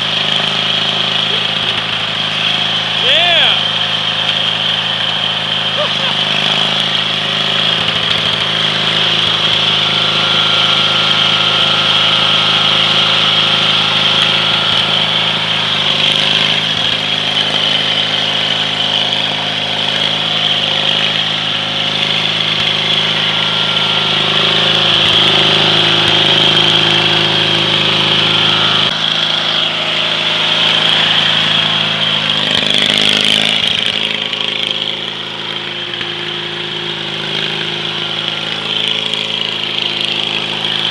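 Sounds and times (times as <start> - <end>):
lawn tractor engine running: 0.0 - 40.9.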